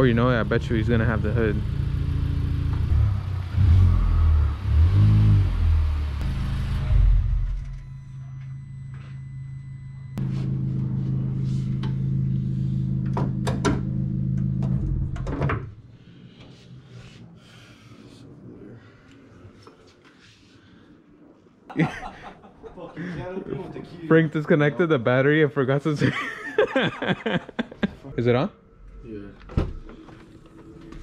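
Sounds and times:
car engine revving: 0:00.0 - 0:08.0
steady low hum: 0:00.0 - 0:24.2.

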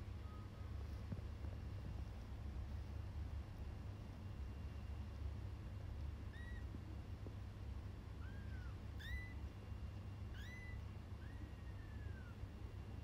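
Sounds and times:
kittens mewing: 0:08.2 - 0:09.4, 0:10.3 - 0:12.4.

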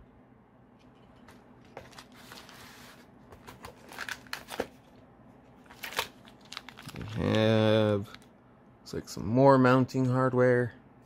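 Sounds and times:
plastic bag crinkling: 0:05.6 - 0:08.2.

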